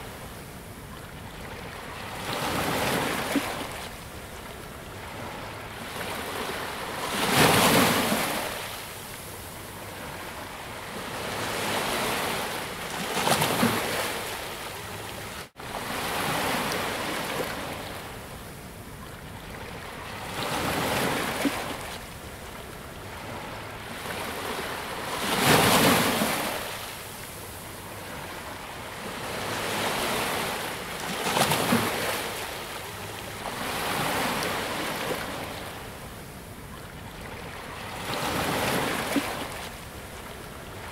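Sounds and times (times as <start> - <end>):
ocean waves breaking on shore: 0.0 - 40.9.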